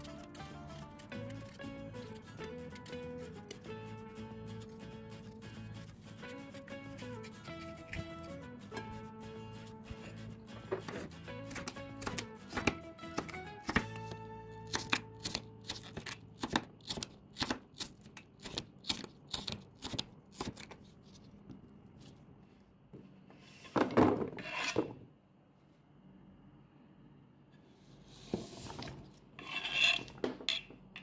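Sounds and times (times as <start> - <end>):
knife chopping on wooden board: 10.8 - 14.1.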